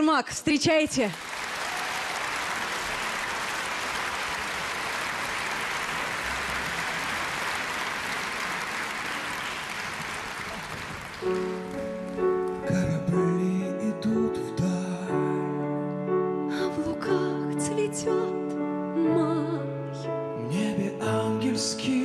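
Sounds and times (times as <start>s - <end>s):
audience applauding: 1.0s - 13.0s.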